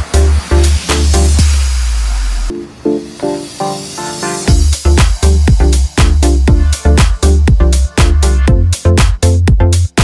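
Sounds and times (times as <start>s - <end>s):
hiss: 0.0s - 2.5s
electronic music with heavy bass: 0.0s - 10.0s.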